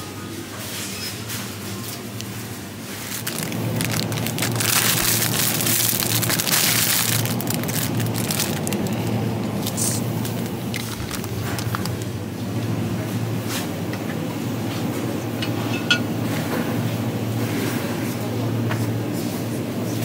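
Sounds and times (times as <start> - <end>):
plastic bags rustling and crackling: 1.5 - 12.4
steady low hum: 2.2 - 17.4.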